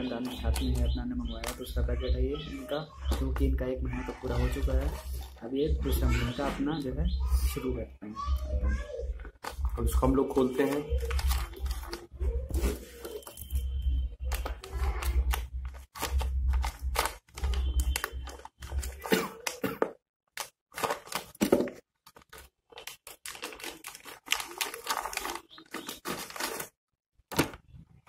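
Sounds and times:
plastic packet crinkling and tearing: 0:00.0 - 0:02.2, 0:09.2 - 0:19.6, 0:20.4 - 0:27.6.

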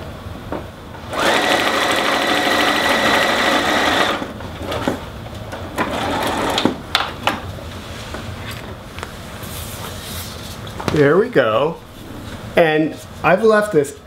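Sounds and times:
sewing machine stitching: 0:01.1 - 0:04.3.

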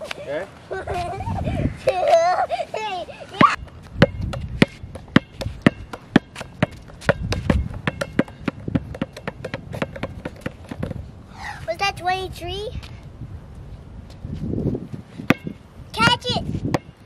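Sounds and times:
basketball bouncing on asphalt: 0:03.4 - 0:11.1, 0:15.2 - 0:17.0.

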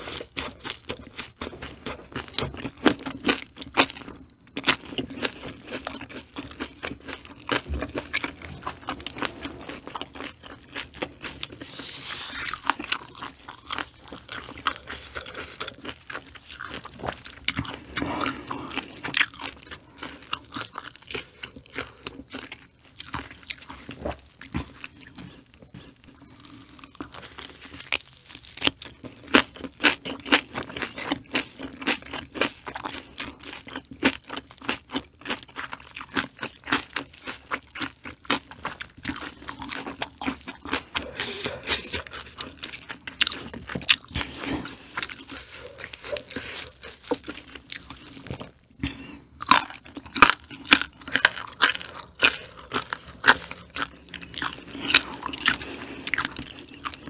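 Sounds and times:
person chewing crunchy food: 0:00.0 - 0:57.0.

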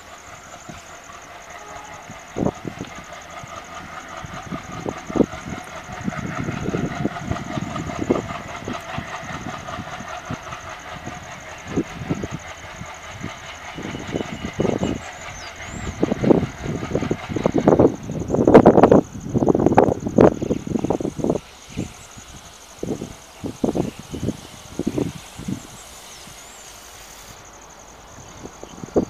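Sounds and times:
diesel locomotive engine under load: 0:00.0 - 0:29.0.

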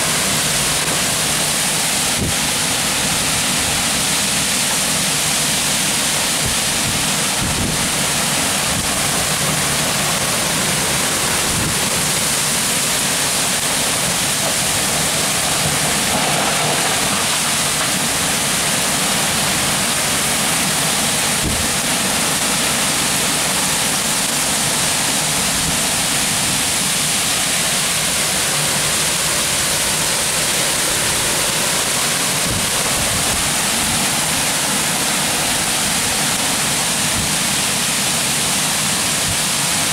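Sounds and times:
torrential rain: 0:00.0 - 0:39.9
wind buffeting the microphone: 0:06.4 - 0:08.0, 0:21.3 - 0:21.8, 0:32.2 - 0:34.0.

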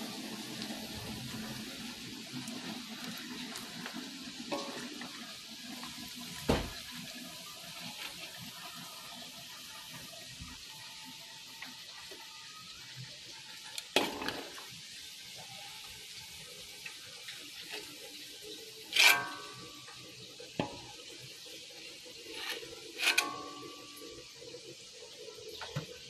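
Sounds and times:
meat sizzling in hot oil: 0:00.0 - 0:26.0
sharp cracks of frying oil: 0:01.6 - 0:07.0, 0:13.6 - 0:16.0, 0:16.7 - 0:26.0.

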